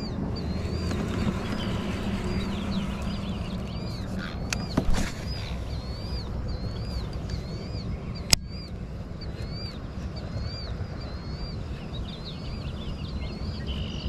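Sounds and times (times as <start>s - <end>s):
bird chirping: 0.0s - 14.0s
low rumble: 0.0s - 14.0s
sharp click: 8.3s - 8.5s.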